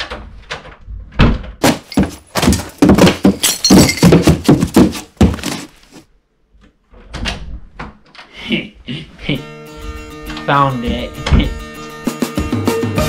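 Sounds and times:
banging and clattering: 0.0 - 5.8.

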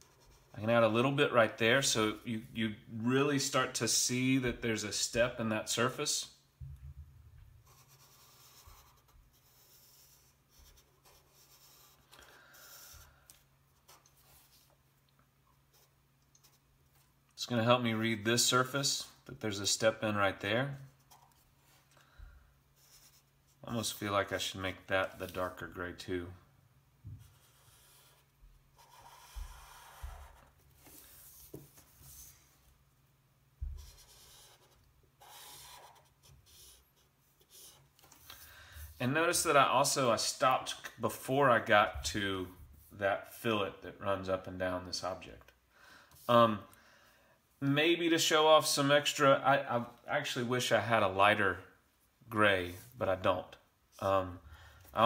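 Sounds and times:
marker rubbing on paper: 0.0 - 1.0, 7.6 - 13.1, 15.6 - 16.6, 22.8 - 23.6, 27.1 - 32.6, 33.6 - 38.3.

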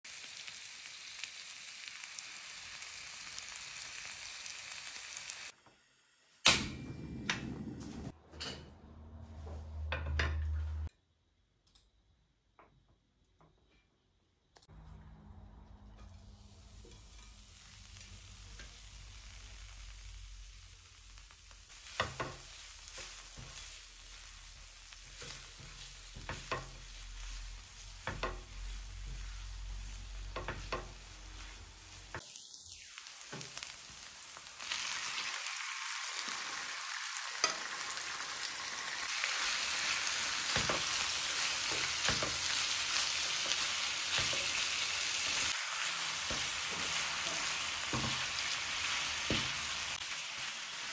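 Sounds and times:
food sizzling on a hot pan: 0.0 - 6.4, 16.1 - 50.9.

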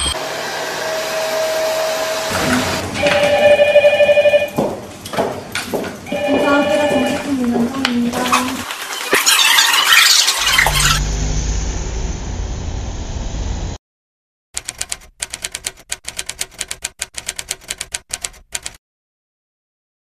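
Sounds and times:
rapid keystroke clicks: 14.6 - 18.8.

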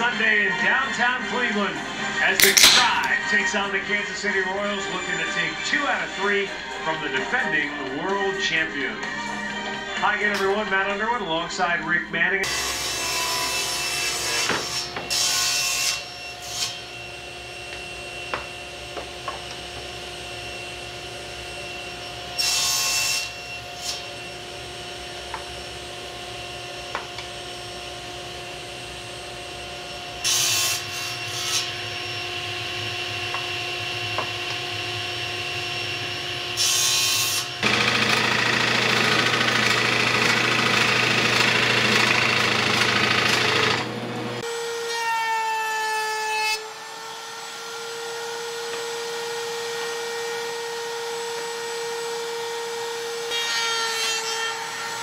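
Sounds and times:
table saw cutting boards: 0.0 - 11.8, 12.4 - 55.0
drill press boring into wood: 37.6 - 44.4.

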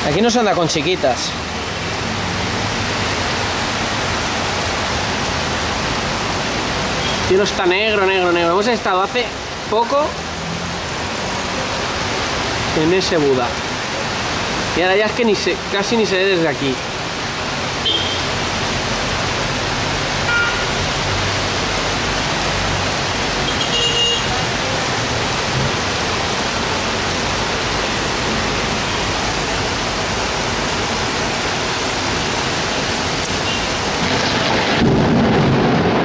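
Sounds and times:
heavy rain pouring: 0.0 - 36.0
deep rumble of thunder: 34.0 - 36.0.

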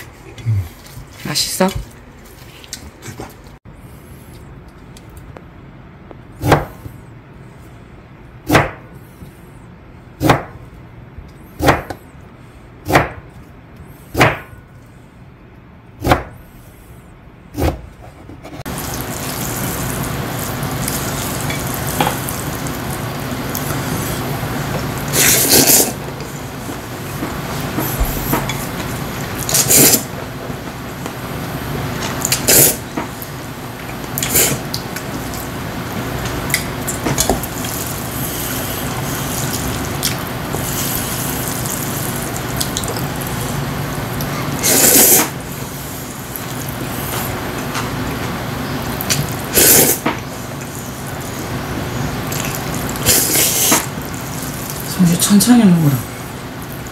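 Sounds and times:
person slurping noodles: 0.2 - 0.9, 25.1 - 26.0, 29.5 - 30.1, 32.3 - 32.8, 44.4 - 46.0, 49.5 - 51.5, 52.3 - 54.4.

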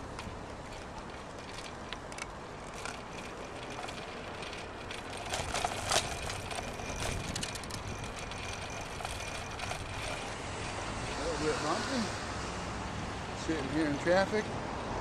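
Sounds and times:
small rattling clicks: 0.0 - 10.8
bicycle tyres on asphalt: 0.0 - 14.3.

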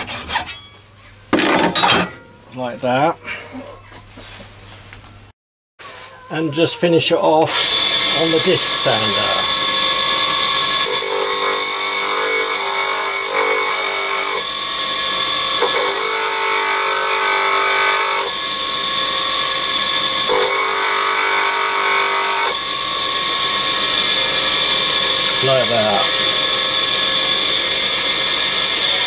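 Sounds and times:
disc sander grinding metal: 6.6 - 29.0.

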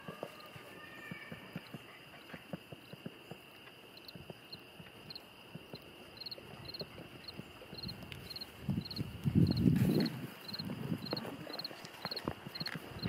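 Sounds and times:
insects chirping: 0.0 - 13.0
low rumbling rustle: 6.4 - 13.0.

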